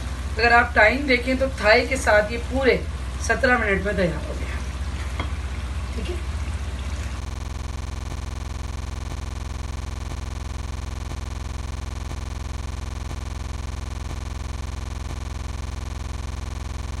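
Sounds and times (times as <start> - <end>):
electronic buzz: 7.2 - 17.0.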